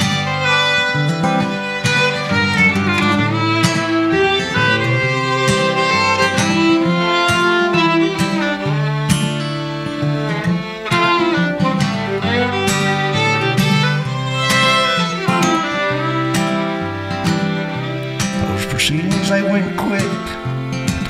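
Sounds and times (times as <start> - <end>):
fiddle playing sliding notes: 0.0 - 21.0
strummed acoustic guitar: 0.0 - 21.0.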